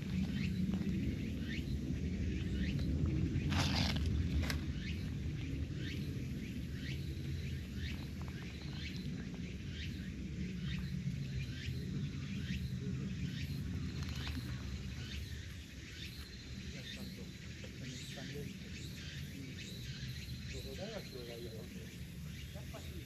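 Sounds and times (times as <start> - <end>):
steady low rumble: 0.0 - 20.7
bird chirping: 4.7 - 23.0.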